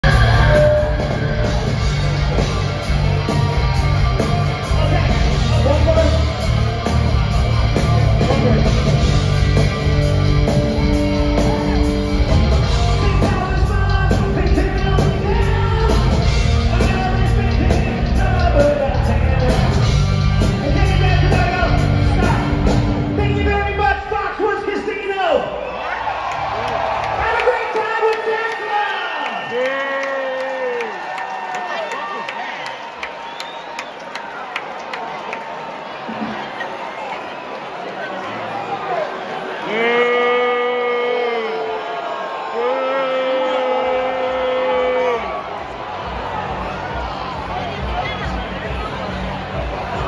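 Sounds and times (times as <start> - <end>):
live heavy metal band: 0.0 - 24.1
man singing: 13.0 - 19.7.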